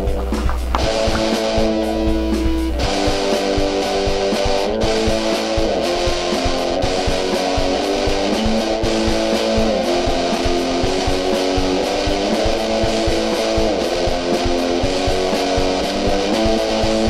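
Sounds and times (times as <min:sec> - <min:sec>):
guitar band song: 0:00.0 - 0:17.0.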